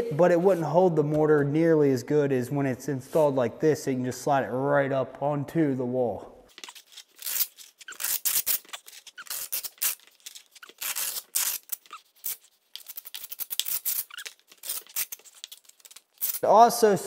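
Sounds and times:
steel blade scraping wet mortar: 6.5s - 16.4s.

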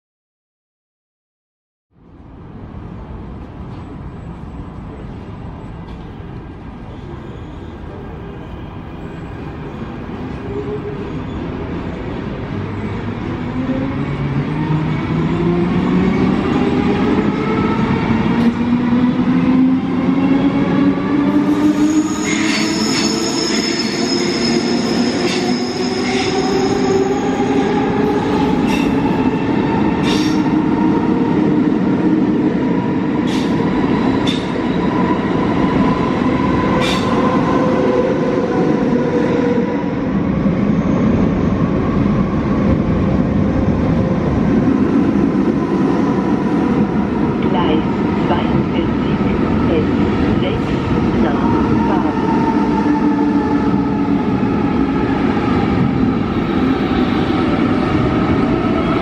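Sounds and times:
second train passing: 2.0s - 59.0s
train rumbling: 2.1s - 59.0s
high wheel squeal: 21.7s - 26.9s.

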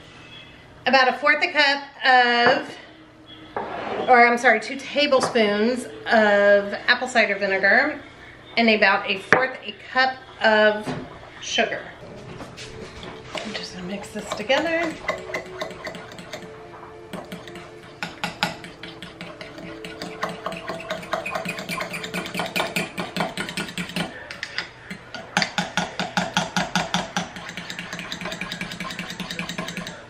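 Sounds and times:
spoon stirring in ceramic bowl: 12.0s - 30.0s.

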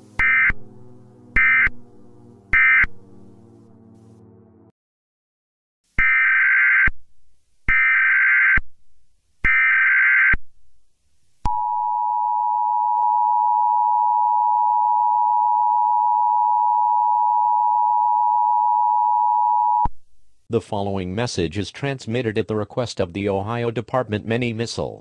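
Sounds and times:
data burst tones: 0.0s - 3.5s
two-tone attention signal: 0.2s - 3.2s.

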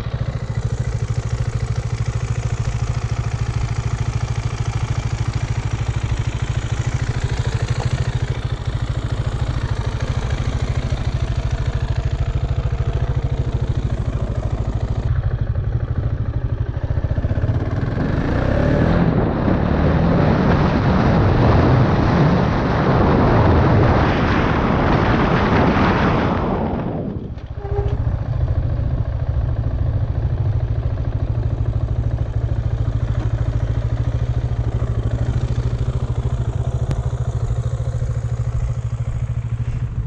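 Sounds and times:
motorcycle engine running: 0.0s - 40.0s
wind noise on microphone: 18.8s - 29.6s.

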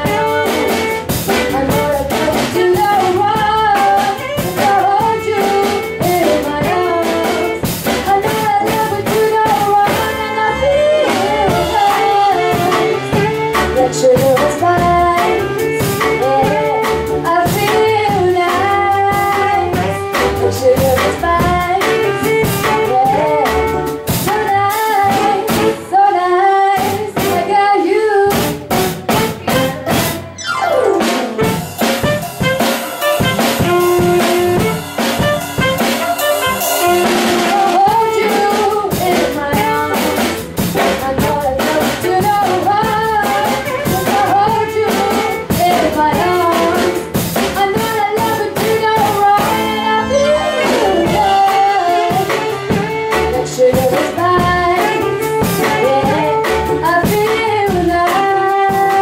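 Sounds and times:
woman singing: 0.0s - 30.2s, 36.4s - 59.0s
bass guitar: 0.0s - 59.0s
drum kit: 0.0s - 59.0s
saxophone: 0.0s - 59.0s
downward sweep: 30.4s - 31.9s.

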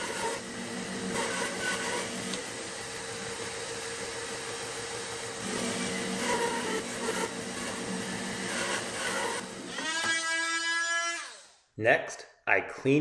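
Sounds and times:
bandsaw cutting wood: 0.0s - 2.6s, 5.4s - 11.6s.

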